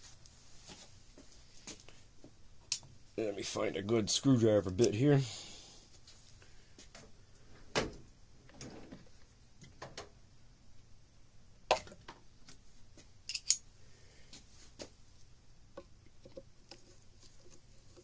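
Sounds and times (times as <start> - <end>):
small tools clicking and knocking: 13.3 - 13.6.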